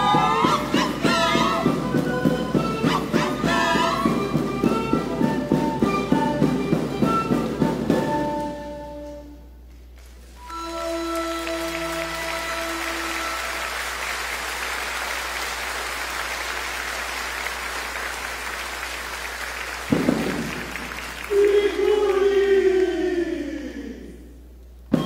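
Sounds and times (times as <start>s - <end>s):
held music notes: 0.0s - 16.0s
audience applauding: 10.0s - 22.4s.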